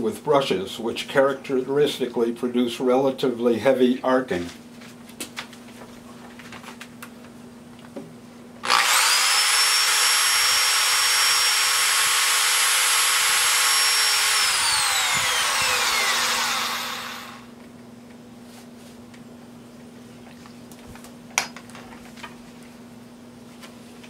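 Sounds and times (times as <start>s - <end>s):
electric drill motor whine: 8.6s - 17.5s.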